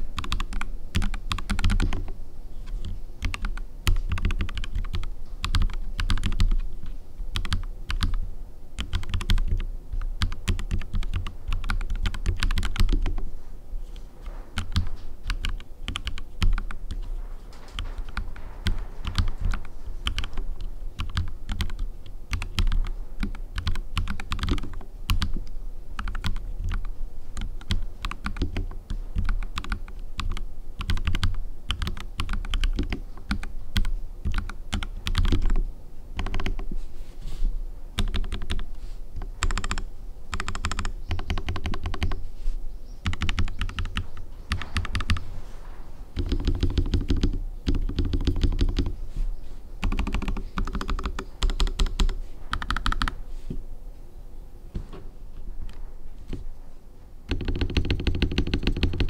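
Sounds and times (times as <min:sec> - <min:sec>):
mechanical keyboard typing: 0:00.2 - 0:08.2, 0:08.8 - 0:13.2, 0:14.6 - 0:17.0, 0:17.8 - 0:20.4, 0:21.0 - 0:35.6, 0:36.2 - 0:36.6, 0:38.0 - 0:38.6, 0:39.4 - 0:42.2, 0:43.0 - 0:45.2, 0:46.2 - 0:49.0, 0:49.8 - 0:53.2, 0:57.3 - 0:59.0.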